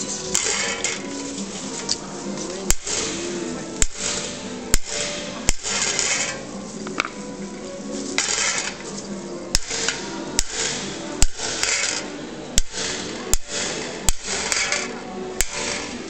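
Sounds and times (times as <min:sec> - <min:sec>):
hammer tapping metal punch: 0:03.8 - 0:06.4, 0:09.6 - 0:12.0.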